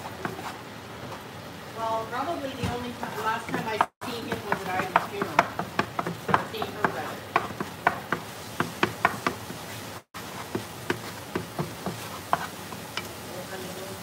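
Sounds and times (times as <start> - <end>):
wooden spatula tapping and scraping pan: 2.6 - 9.7, 10.3 - 13.2.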